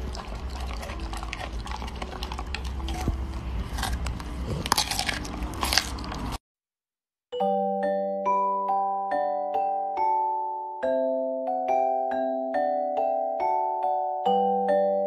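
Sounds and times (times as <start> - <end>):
dog crunching broccoli: 0.0 - 6.4.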